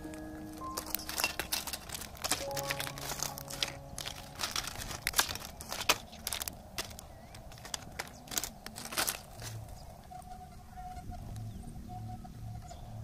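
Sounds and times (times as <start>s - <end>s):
plastic clattering and crinkling: 0.0s - 9.8s.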